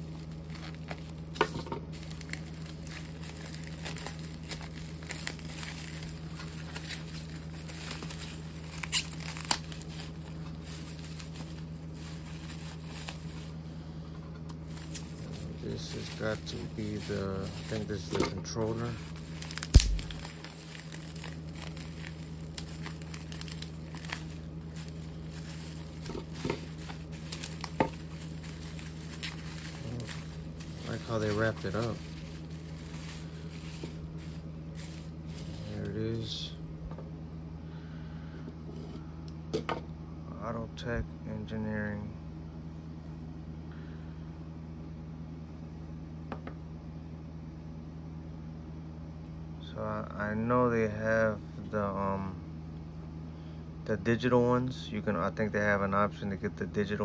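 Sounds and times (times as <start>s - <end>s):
bubble wrap crinkling: 0.0s - 13.8s, 14.4s - 36.6s
low machine hum: 0.0s - 57.0s.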